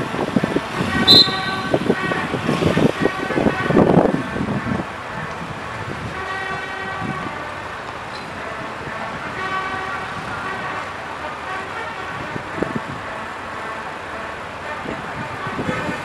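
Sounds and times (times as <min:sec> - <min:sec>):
city traffic noise: 0:00.0 - 0:16.0
vehicle horn blasts: 0:00.8 - 0:04.7, 0:06.1 - 0:07.6, 0:08.6 - 0:13.2, 0:14.6 - 0:16.0.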